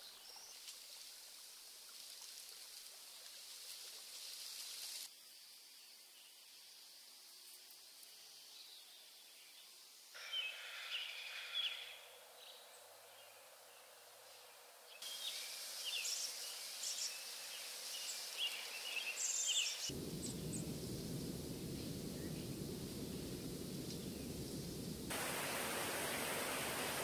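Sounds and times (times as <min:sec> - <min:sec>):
faint hiss: 0:00.0 - 0:27.0
small birds chirping: 0:08.1 - 0:25.6
steady rushing noise: 0:19.9 - 0:27.0.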